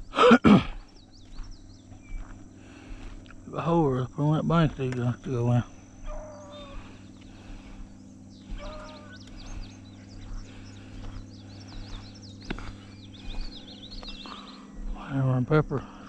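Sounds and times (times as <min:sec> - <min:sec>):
distant dog baying: 0:04.6 - 0:15.0.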